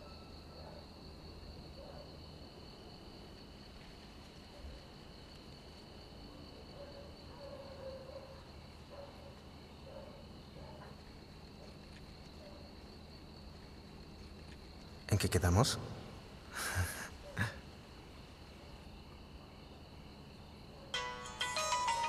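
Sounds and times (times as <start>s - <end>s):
night insects chirring: 0.0s - 22.0s.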